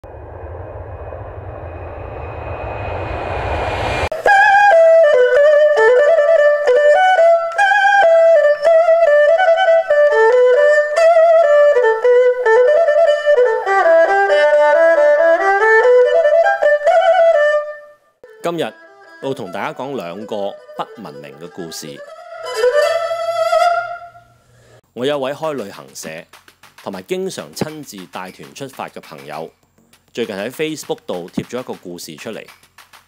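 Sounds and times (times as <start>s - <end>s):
aircraft engine whine and rumble: 0.0s - 4.1s
quick instrumental melody: 26.8s - 29.5s.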